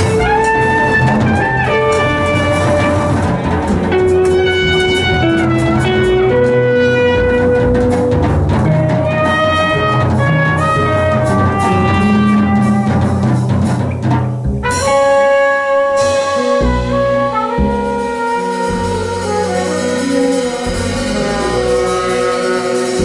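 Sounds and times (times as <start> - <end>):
trumpet playing melody: 0.0 - 13.6, 14.6 - 23.0
double bass: 0.0 - 23.0
drum kit: 0.0 - 23.0
guitar: 0.0 - 23.0.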